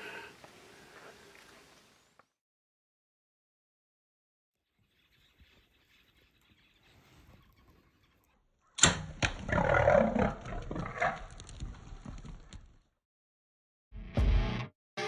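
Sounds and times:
arrow hitting: 0:08.8 - 0:09.4.

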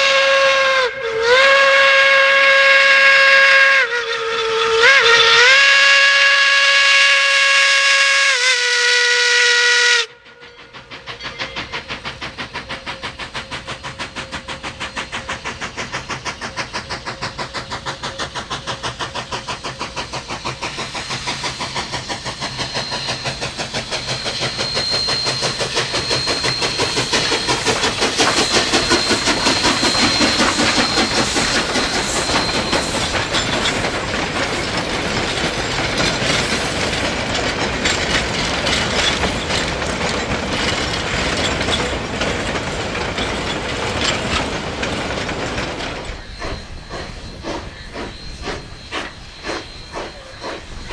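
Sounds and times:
steam locomotive whistle: 0:00.0 - 0:11.8, 0:12.5 - 0:34.2, 0:45.8 - 0:50.9
steam exhaust chuffs: 0:10.2 - 0:50.9
wheel squeal: 0:10.4 - 0:50.9
wheels clattering over rail joints: 0:21.7 - 0:48.3.

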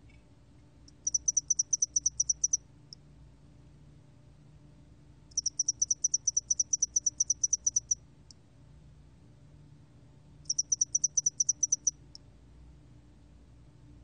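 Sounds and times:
cricket chirping pulses: 0:00.9 - 0:02.6, 0:05.3 - 0:08.0, 0:10.5 - 0:12.0.

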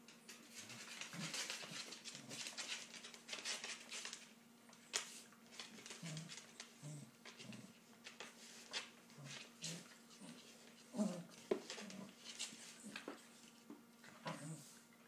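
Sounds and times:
dogs scuffling: 0:00.1 - 0:14.8
dog growling: 0:06.0 - 0:07.8, 0:09.2 - 0:12.2, 0:14.2 - 0:14.8.

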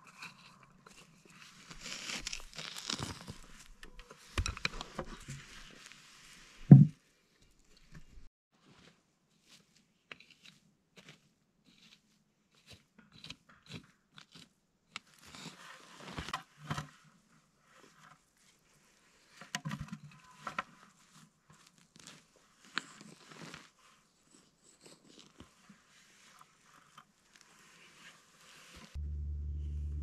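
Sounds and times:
pine needles crunching: 0:01.3 - 0:03.8.

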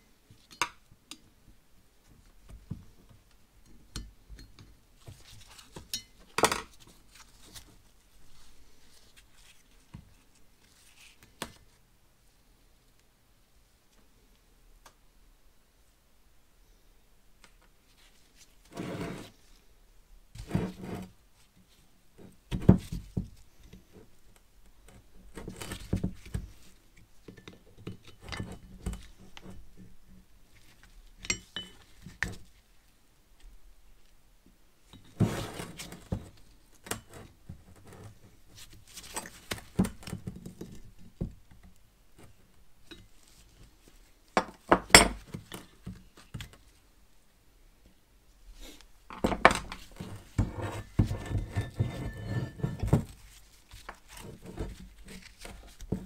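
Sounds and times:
screwdriver scraping metal: 0:50.0 - 0:52.9.

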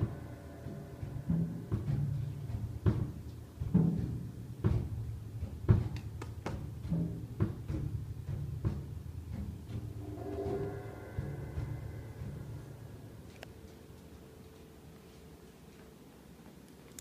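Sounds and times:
grand piano low notes: 0:00.0 - 0:05.6, 0:08.0 - 0:15.8.

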